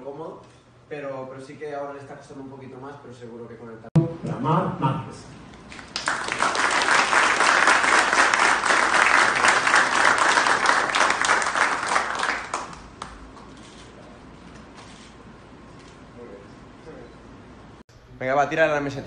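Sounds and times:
audience applauding: 5.7s - 13.5s.

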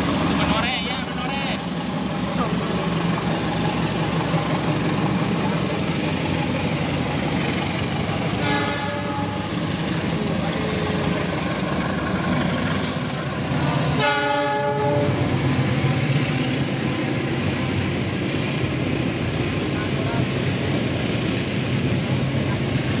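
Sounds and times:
train rumbling past: 0.0s - 23.0s
locomotive horn blasts: 8.3s - 9.5s, 13.9s - 15.2s.

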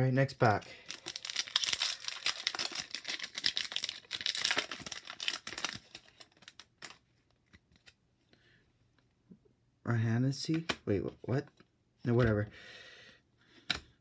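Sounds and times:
cards clicking and rustling: 0.4s - 8.0s
foil wrapper crinkling and tearing: 0.8s - 7.0s.

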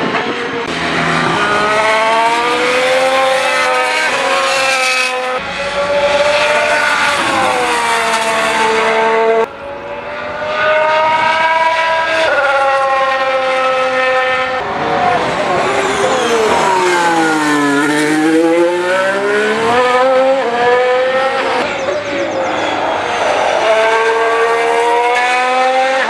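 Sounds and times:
racing car engine at speed: 0.0s - 26.0s.

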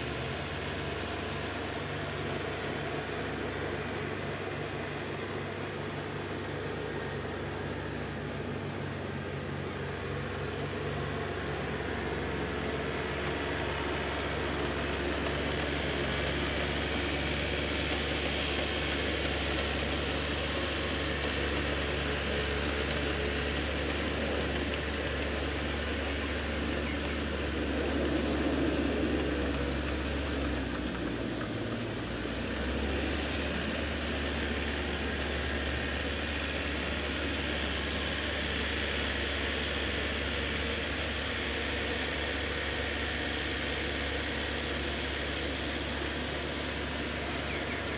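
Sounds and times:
tractor engine running: 0.0s - 47.9s.

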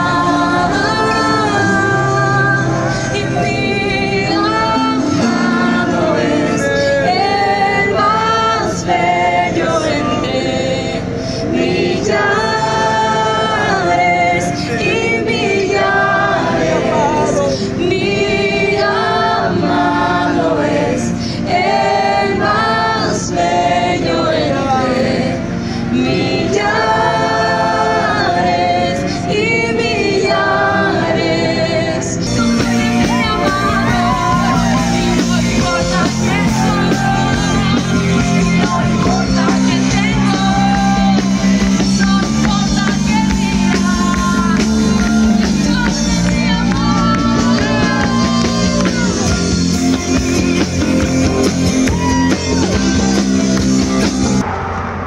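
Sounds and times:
woman singing: 0.0s - 11.0s, 27.7s - 51.1s
instrumental backing: 0.0s - 54.4s
voices singing together: 0.0s - 54.5s.

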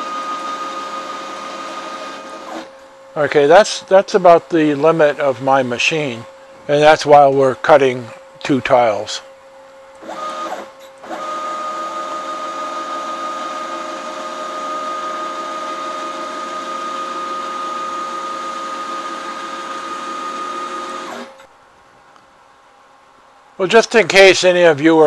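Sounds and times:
stepper motors whining: 10.0s - 21.5s.

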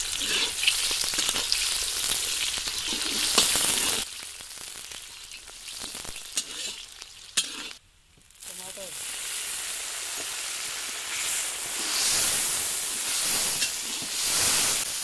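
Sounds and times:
onions sizzling in oil: 0.0s - 15.0s
spatula scraping iron pan: 0.1s - 0.7s, 6.4s - 6.8s, 7.4s - 7.8s.

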